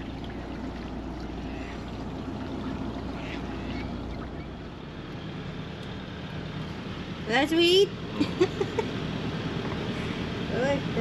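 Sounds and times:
water washing: 0:00.0 - 0:05.6
boat engine humming: 0:00.0 - 0:11.0.

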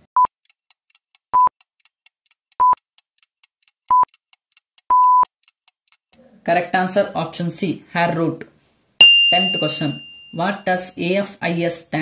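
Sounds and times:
short high beeps: 0:04.9 - 0:05.2.

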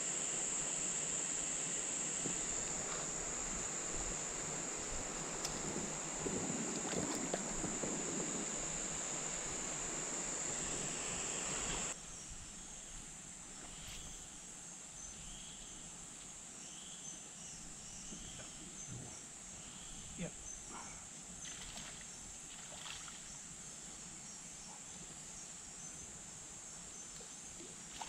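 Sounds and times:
stream water: 0:00.0 - 0:12.0, 0:21.3 - 0:23.6
high-pitched insect drone: 0:00.0 - 0:12.9
fish splashing in shallows: 0:21.4 - 0:23.2.

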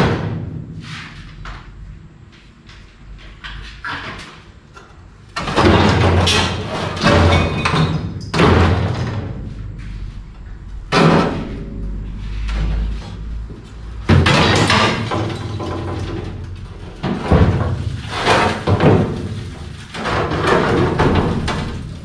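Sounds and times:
heavy bangs on sheet metal: 0:00.0 - 0:00.8, 0:05.4 - 0:09.5, 0:10.8 - 0:22.0.

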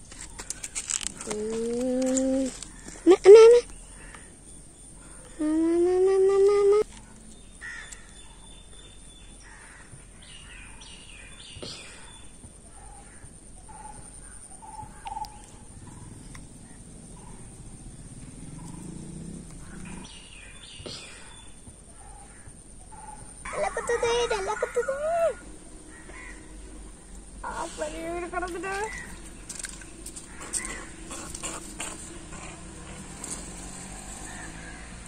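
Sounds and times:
birds calling: 0:06.7 - 0:35.0
crows cawing: 0:07.6 - 0:08.0, 0:25.9 - 0:26.6, 0:30.2 - 0:33.0, 0:34.1 - 0:35.0.

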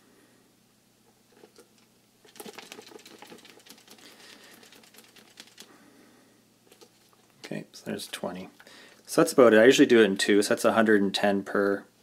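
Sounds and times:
syringe clicking and crackling: 0:01.3 - 0:05.7.

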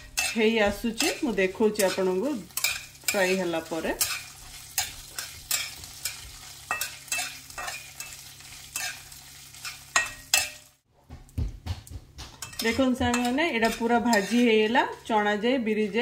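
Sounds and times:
metal spatula scraping a pan: 0:00.0 - 0:10.7, 0:12.4 - 0:16.0
faint sizzle: 0:00.0 - 0:10.8.

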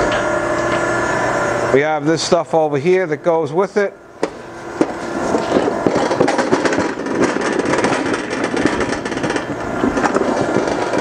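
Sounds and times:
surface grinder grinding: 0:04.4 - 0:11.0.

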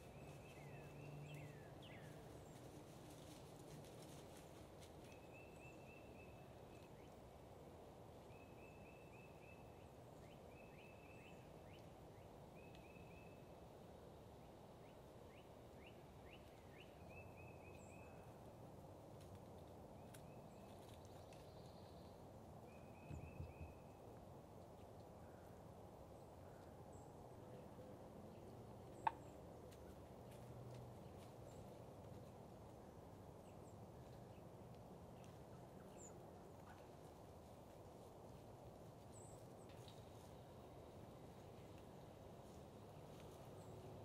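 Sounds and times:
low background hiss: 0:00.0 - 0:44.0
wild turkeys calling: 0:28.9 - 0:29.4.

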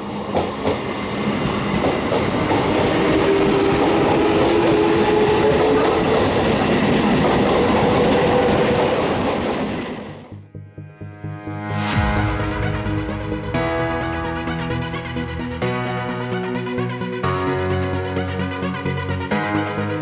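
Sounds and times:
train rushing past: 0:00.0 - 0:10.4, 0:11.6 - 0:17.1.

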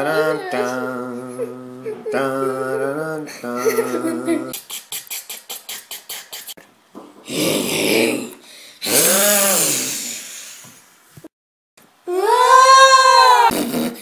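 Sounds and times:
person making vocal effects: 0:07.3 - 0:10.4.

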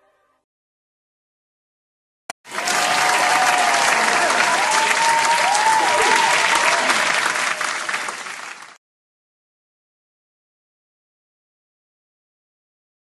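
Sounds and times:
crowd applause: 0:02.4 - 0:08.8
people cheering: 0:02.4 - 0:08.8.

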